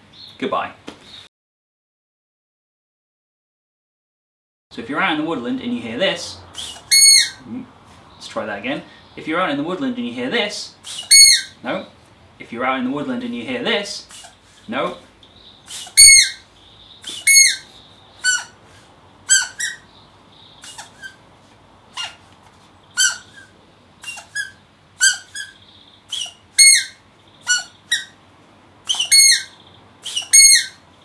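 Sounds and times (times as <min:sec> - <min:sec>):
rubber squeaky toy squeaks: 0:06.6 - 0:07.4, 0:10.9 - 0:11.5, 0:15.7 - 0:16.4, 0:17.1 - 0:18.6, 0:19.3 - 0:19.8, 0:20.6 - 0:21.2, 0:21.9 - 0:22.2, 0:23.0 - 0:28.2, 0:28.9 - 0:30.8.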